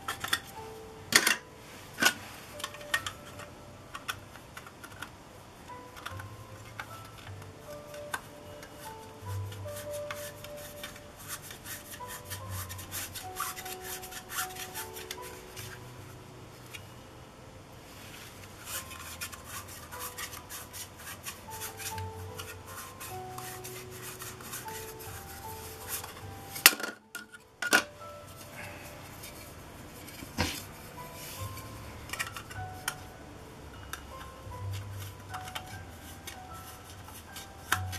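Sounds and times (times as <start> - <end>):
soft background music: 0.0 - 37.9.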